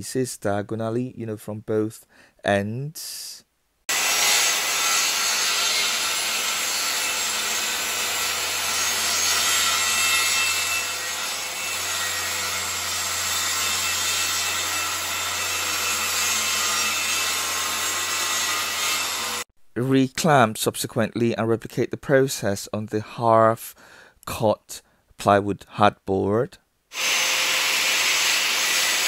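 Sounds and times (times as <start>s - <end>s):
circular saw cutting plywood: 3.9s - 19.5s, 26.9s - 29.0s.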